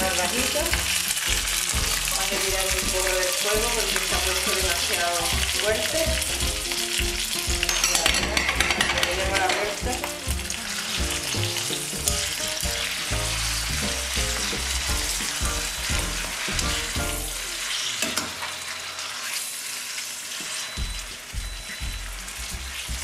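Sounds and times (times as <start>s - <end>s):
meat sizzling in a pan: 0.0s - 23.0s
tongs scraping the pan: 7.4s - 10.2s.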